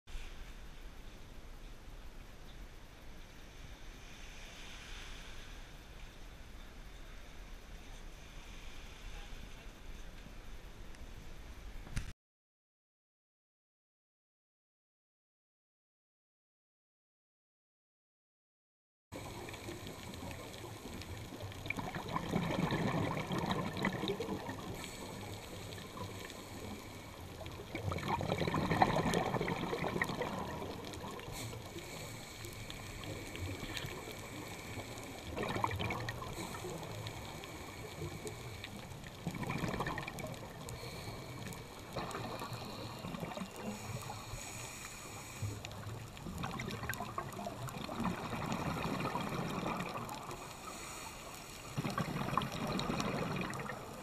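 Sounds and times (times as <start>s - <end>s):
underwater exhaust bubbles: 19.2s - 54.0s.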